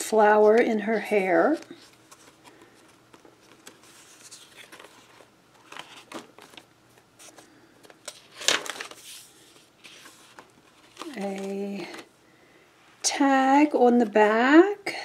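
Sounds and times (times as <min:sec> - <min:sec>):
paper pages rustling: 0:00.5 - 0:12.1.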